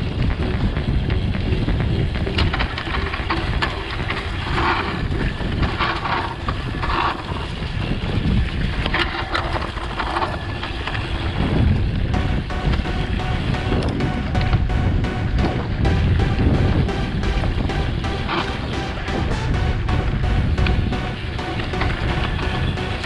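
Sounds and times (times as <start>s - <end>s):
wind on microphone: 0.0s - 12.2s
bike clicks and rattles: 0.6s - 12.1s.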